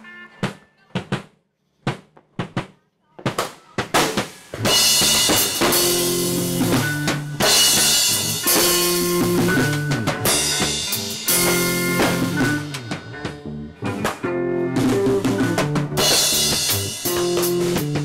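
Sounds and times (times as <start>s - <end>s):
drum hits: 0.4s - 18.0s
rock band music: 3.9s - 18.0s.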